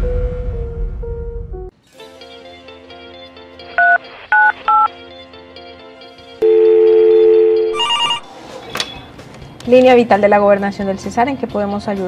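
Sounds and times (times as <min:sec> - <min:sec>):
soft background music: 0:01.0 - 0:12.0
two-note phone tone: 0:06.4 - 0:08.3
keypad two-note beeps: 0:06.8 - 0:08.2.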